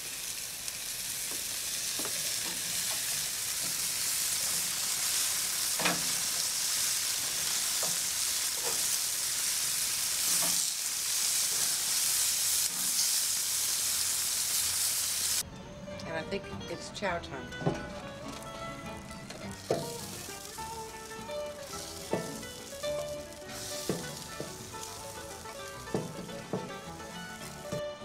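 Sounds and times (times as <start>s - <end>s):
meat sizzling on a grill: 0.0s - 15.4s, 18.0s - 28.0s
metal tongs clicking on grate: 5.8s - 6.4s, 21.7s - 26.9s.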